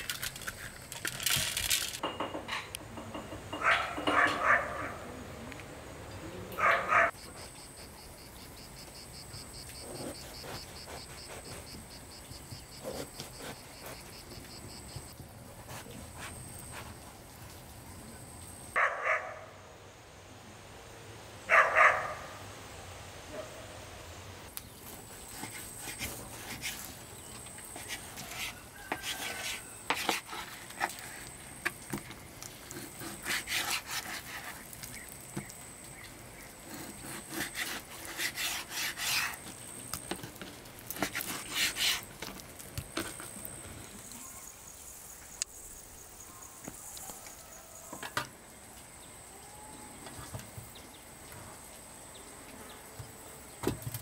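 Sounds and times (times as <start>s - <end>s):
dog barking: 3.6s - 5.0s, 6.6s - 7.2s, 18.8s - 19.6s, 21.5s - 22.4s, 23.3s - 23.7s.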